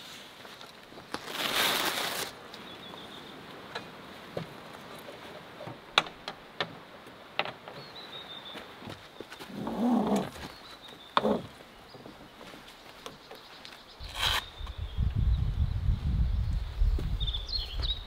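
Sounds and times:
creaking scrape: 14.1 - 14.5.

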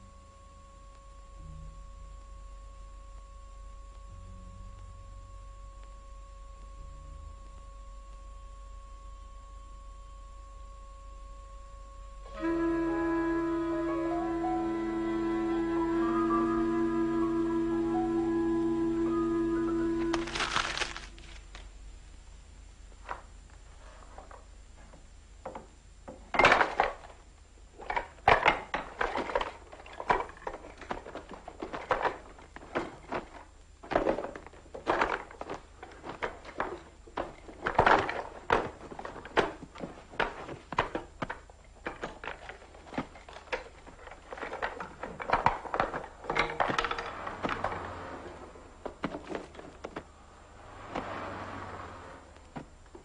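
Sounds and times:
papers and clothing rustling: 19.8 - 21.7, 26.2 - 51.6
wooden drawers and objects clattering: 23.0 - 27.2, 27.8 - 53.0.

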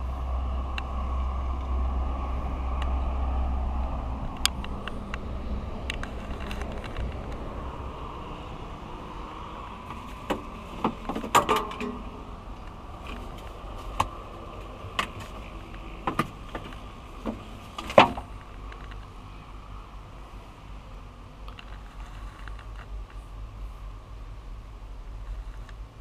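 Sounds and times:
excavator engine running: 0.0 - 19.2.

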